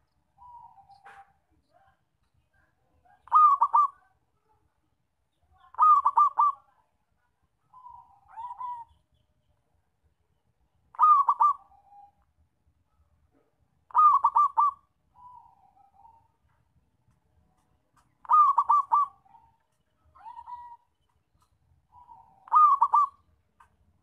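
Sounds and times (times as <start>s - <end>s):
dove cooing: 3.2s - 4.1s, 5.7s - 6.6s, 7.8s - 8.9s, 10.9s - 12.1s, 13.9s - 16.3s, 18.2s - 19.6s, 20.2s - 20.8s, 21.9s - 23.3s.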